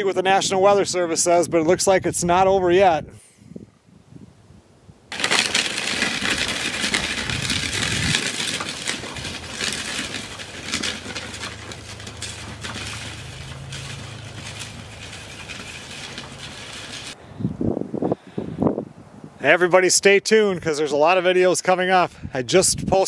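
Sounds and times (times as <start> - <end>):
plastic wheels rattling over ice: 5.1 - 17.2.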